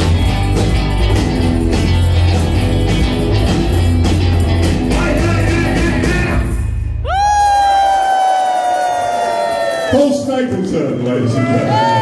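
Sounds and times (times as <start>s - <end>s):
electric bass: 0.0s - 8.0s
drums: 0.0s - 9.9s.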